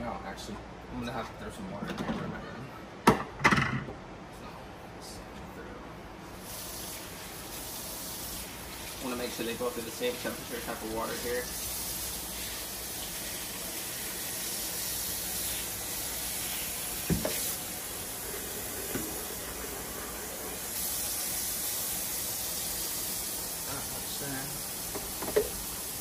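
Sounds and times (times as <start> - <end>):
tap water running: 6.4 - 26.0.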